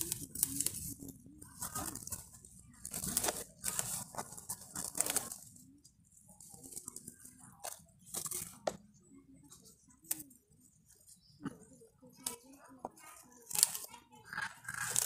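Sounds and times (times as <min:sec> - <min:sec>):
knife cutting herb stems: 0:13.4 - 0:13.9
stems snapping: 0:13.5 - 0:13.9.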